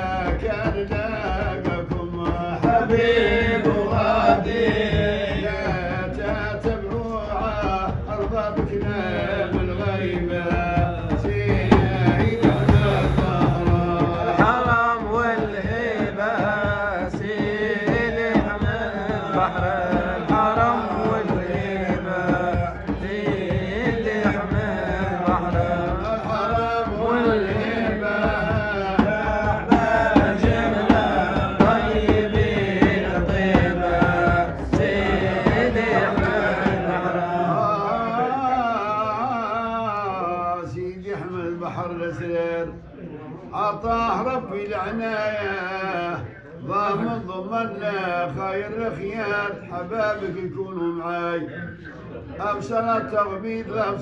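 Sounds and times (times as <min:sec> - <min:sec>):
hand drums beat: 0:00.0 - 0:39.6
man singing devotional song: 0:00.0 - 0:54.0.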